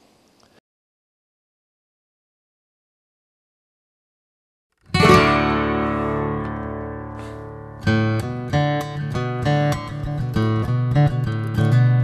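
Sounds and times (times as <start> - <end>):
acoustic guitar chord strummed: 4.8 - 12.0
acoustic guitar picked notes: 4.8 - 12.0.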